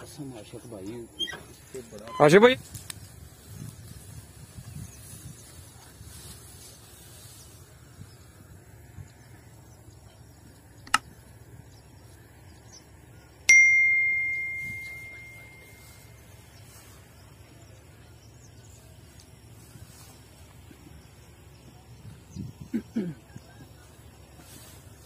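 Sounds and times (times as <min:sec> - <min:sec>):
sharp click: 0:10.8 - 0:11.1
bell-like ding: 0:13.5 - 0:15.8.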